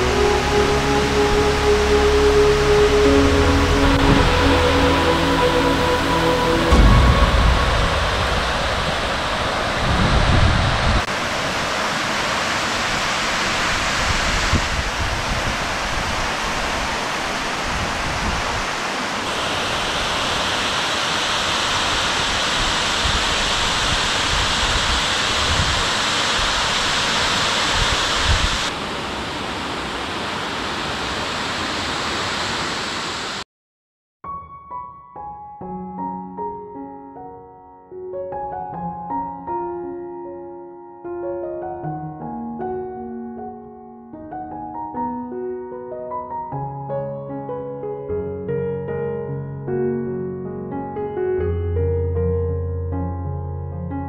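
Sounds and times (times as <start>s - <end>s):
rush of falling water: 0.0s - 33.4s.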